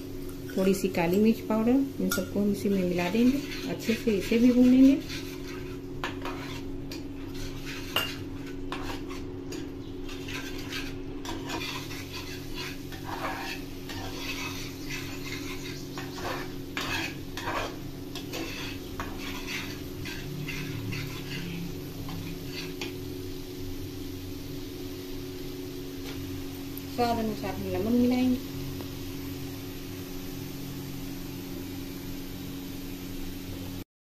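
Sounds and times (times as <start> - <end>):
paste frying: 0.0 - 33.8
metal spatula scraping a pan: 2.0 - 23.0.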